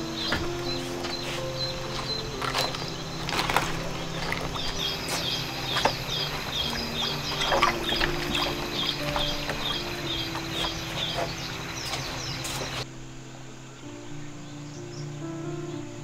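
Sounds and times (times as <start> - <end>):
high chirps: 0.0 - 12.9
water splashing in a tub: 2.4 - 12.8.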